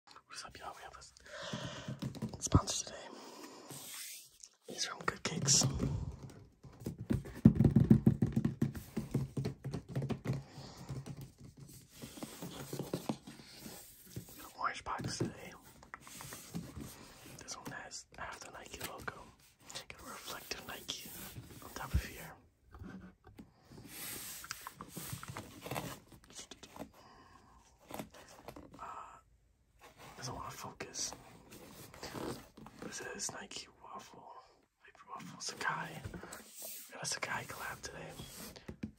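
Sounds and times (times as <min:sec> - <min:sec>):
hands handling cardboard box: 0:05.3 - 0:17.8
fingertips tapping on cardboard box: 0:06.2 - 0:11.8.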